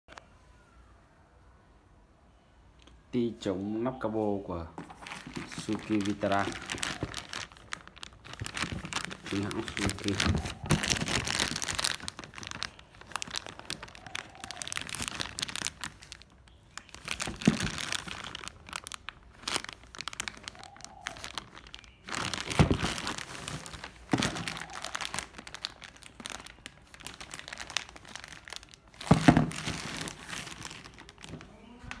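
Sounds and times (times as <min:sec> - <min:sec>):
plastic bag crinkling: 0:04.7 - 0:32.0
bumps of plastic bag: 0:04.8 - 0:31.8.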